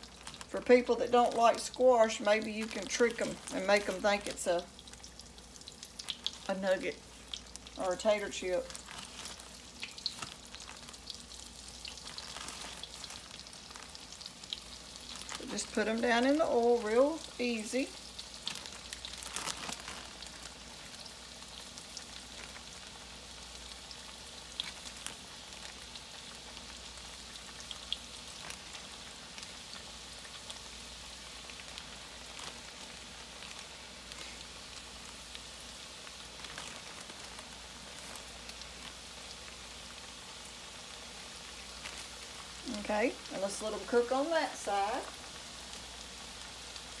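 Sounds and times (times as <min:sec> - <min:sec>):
oil sizzling and crackling: 0:00.0 - 0:47.0.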